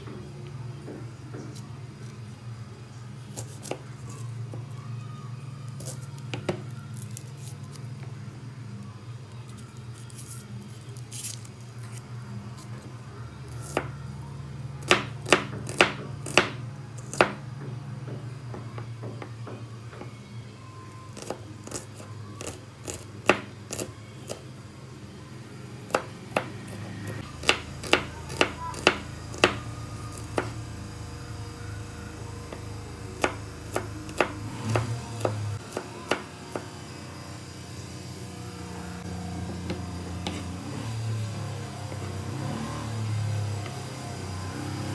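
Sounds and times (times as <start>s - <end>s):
knife chopping on cutting board: 39.6s - 40.5s.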